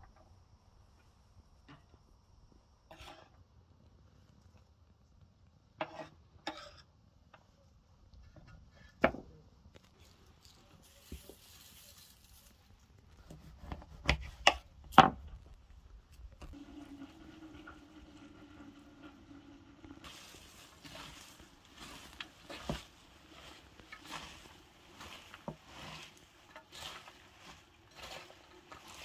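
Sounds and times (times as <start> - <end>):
salt sprinkling hiss: 9.9 - 13.2, 20.0 - 29.0.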